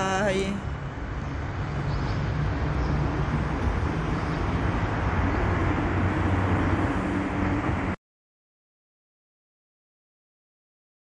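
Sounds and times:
road noise: 0.0s - 8.0s
vehicle engine humming: 0.0s - 8.0s.

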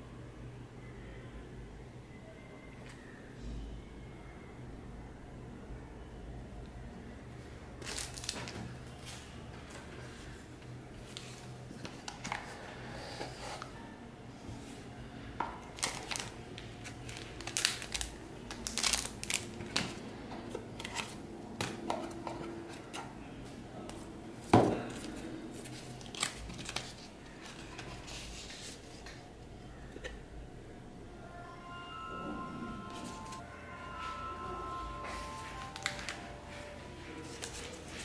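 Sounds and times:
paper rustling: 25.0s - 29.2s, 37.2s - 38.0s.

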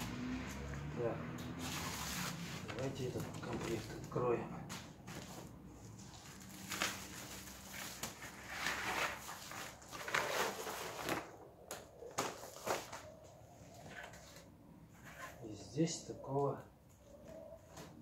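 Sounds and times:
packaging rustling and crinkling: 1.6s - 4.2s, 5.0s - 14.4s.

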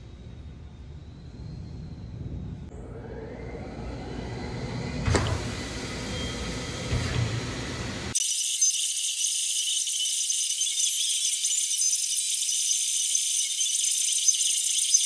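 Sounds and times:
low hum: 0.0s - 8.2s
router engraving plastic: 8.1s - 15.0s.

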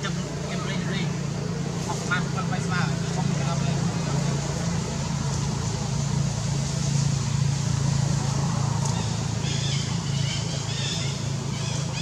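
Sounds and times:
engine running: 0.0s - 12.0s.

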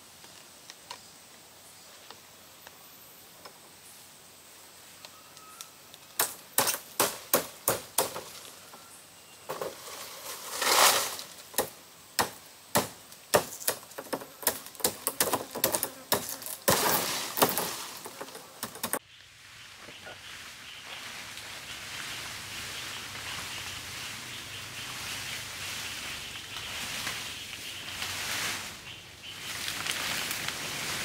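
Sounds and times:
forest background: 0.0s - 31.0s
leaves rustling: 0.0s - 31.0s
blade chopping palm stalks: 6.2s - 8.4s, 10.6s - 19.0s.

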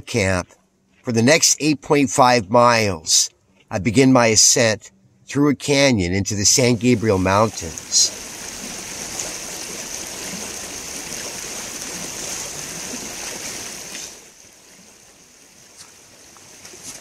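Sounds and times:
creek water rushing: 6.3s - 17.0s.

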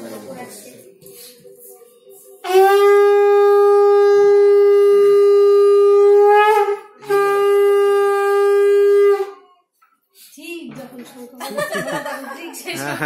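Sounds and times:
conch shell blast: 2.4s - 9.4s.

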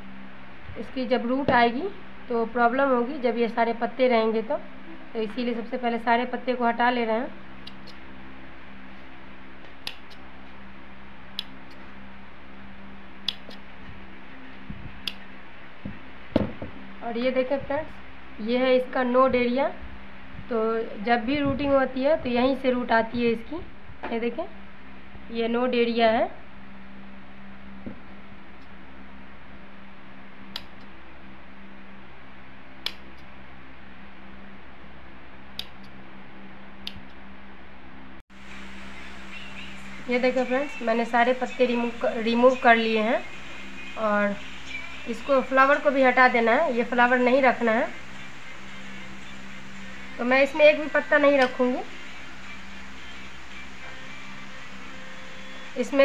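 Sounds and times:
steady low hum: 0.0s - 56.0s
scissors snipping: 9.8s - 10.2s.

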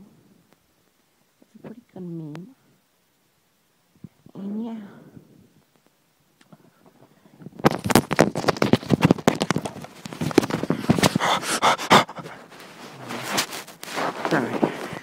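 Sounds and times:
person panting and gasping: 10.6s - 12.6s.

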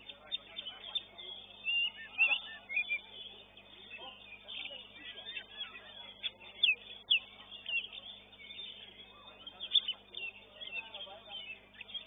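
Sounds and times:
bird singing whistled notes: 0.0s - 12.0s.

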